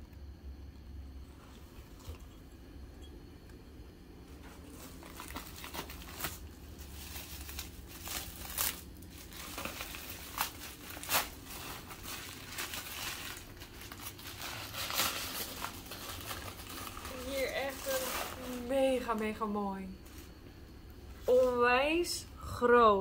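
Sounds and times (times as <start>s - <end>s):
bubble wrap and paper crinkling: 4.2s - 20.4s.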